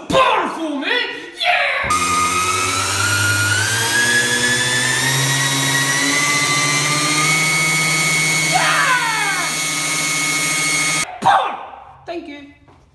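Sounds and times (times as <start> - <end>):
electric motors whining: 1.9 - 11.0
low motor hum: 1.9 - 11.0.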